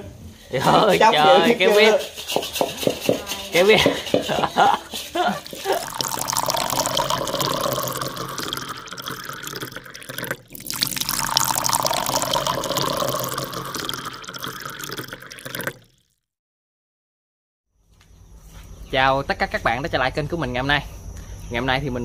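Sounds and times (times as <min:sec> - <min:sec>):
rushing splashing water: 0:05.4 - 0:15.8.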